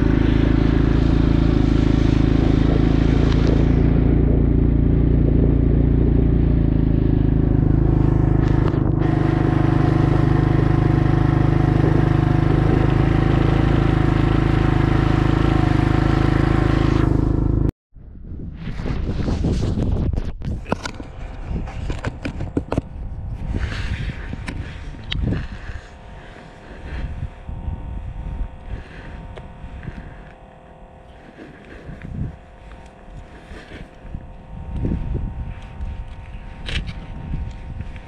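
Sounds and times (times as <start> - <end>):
wind buffeting microphone: 18.0 - 38.0
faint steady hum: 22.8 - 38.0.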